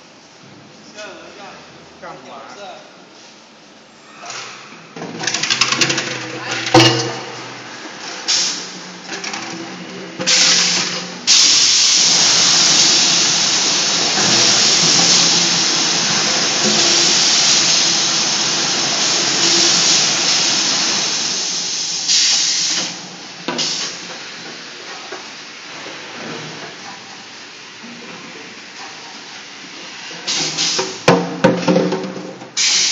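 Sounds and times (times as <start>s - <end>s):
water jets spraying with loud hiss: 9.8s - 24.4s, 32.6s - 32.9s.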